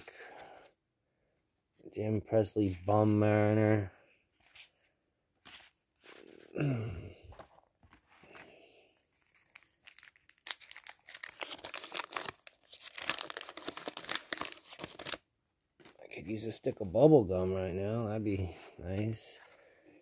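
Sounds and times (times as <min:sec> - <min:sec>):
wax paper wrapper tearing and crinkling: 0:09.2 - 0:15.2.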